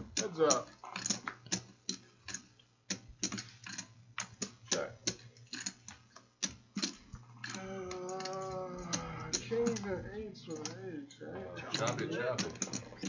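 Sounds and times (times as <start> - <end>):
low steady hum: 7.1 - 13.0.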